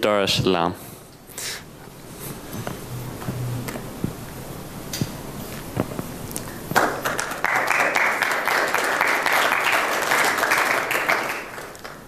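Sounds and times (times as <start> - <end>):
audience applauding: 6.8 - 12.0.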